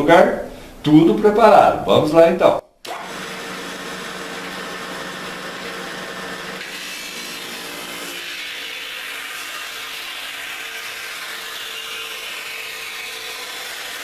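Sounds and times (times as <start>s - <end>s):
cutter shaving wood hiss: 2.8s - 14.0s
electric motor humming: 2.9s - 14.0s.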